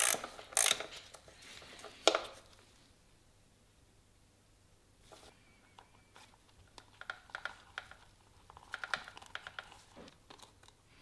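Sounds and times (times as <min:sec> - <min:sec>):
plastic connectors clicking: 0:06.6 - 0:10.8.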